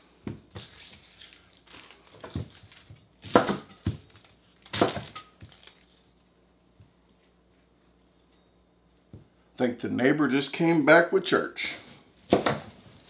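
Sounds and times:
onion skin crinkling and tearing: 0.5 - 6.7.

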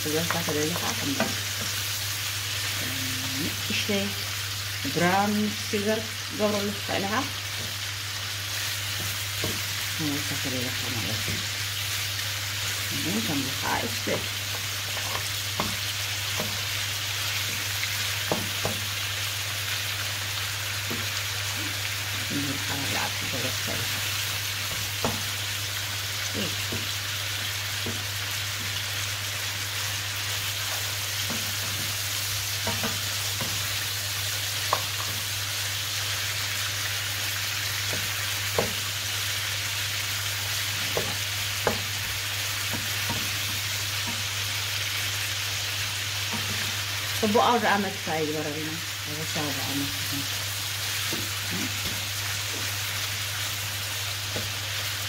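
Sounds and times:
meat sizzling in a frying pan: 0.0 - 55.0
wooden spoon knocking on a pan: 9.0 - 9.7, 15.0 - 15.8, 18.2 - 18.9, 24.7 - 25.3, 26.7 - 26.9, 27.8 - 28.7, 32.6 - 33.6, 37.9 - 38.9, 40.9 - 41.9, 42.7 - 44.2.

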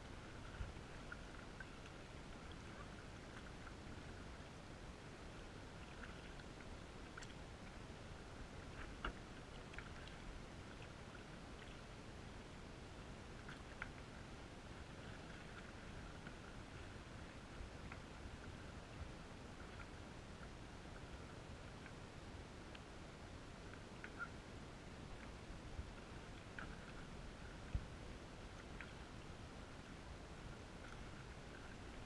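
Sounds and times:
low steady hiss: 0.0 - 32.0
paddle ticks in water: 5.7 - 7.8, 8.6 - 11.9, 13.4 - 14.2, 14.8 - 22.0, 23.6 - 24.4, 25.1 - 32.0.

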